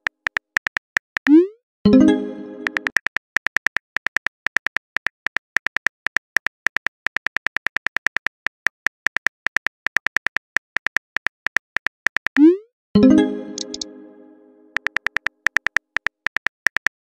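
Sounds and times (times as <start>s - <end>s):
phone keyboard key clicks: 14.8s - 17.0s.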